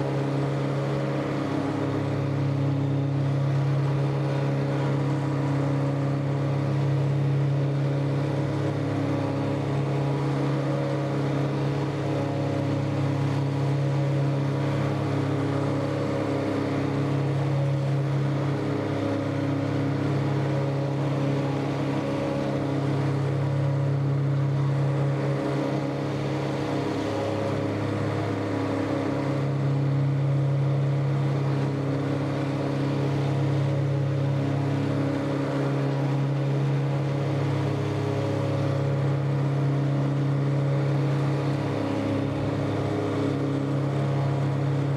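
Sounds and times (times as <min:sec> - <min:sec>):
tractor engine running under load: 0:00.0 - 0:44.9.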